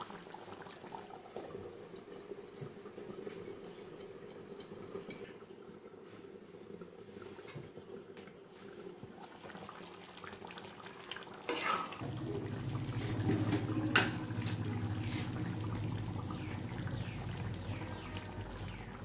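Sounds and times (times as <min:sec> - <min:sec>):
curry bubbling in a pan: 0:00.0 - 0:19.0
ladle stirring in a pan: 0:11.1 - 0:18.3.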